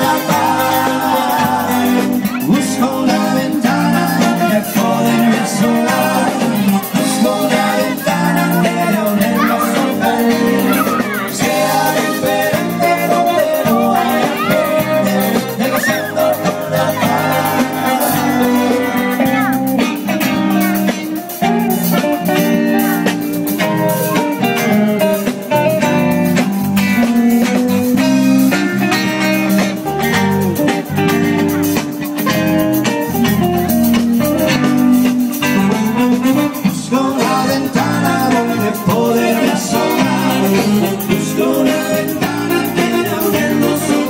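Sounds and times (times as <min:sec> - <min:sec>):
rock band playing: 0:00.0 - 0:44.0
lead guitar bending notes: 0:03.6 - 0:37.0.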